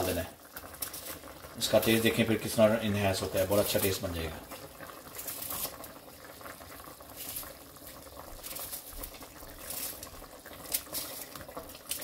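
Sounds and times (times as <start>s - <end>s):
gravy bubbling in pot: 0.0s - 12.0s
onion skin crackling: 0.6s - 1.4s, 3.6s - 12.0s.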